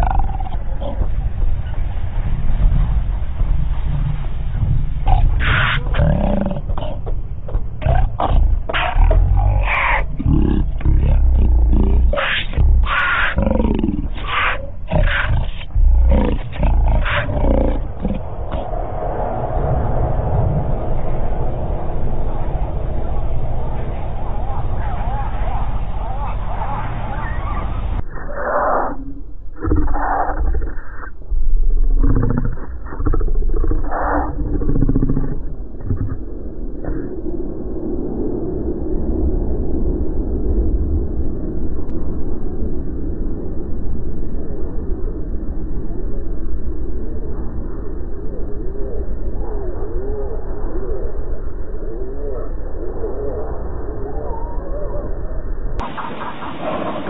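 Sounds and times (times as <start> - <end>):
big cats snarling and roaring: 0.0 - 1.6, 2.9 - 21.3, 27.2 - 31.2, 31.8 - 36.2, 55.8 - 57.0
deep rumbling growl: 0.0 - 57.0.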